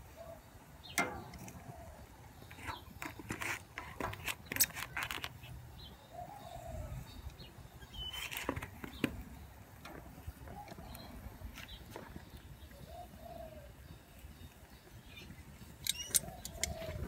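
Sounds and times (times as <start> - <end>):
metal tongs clicking: 15.8 - 17.0.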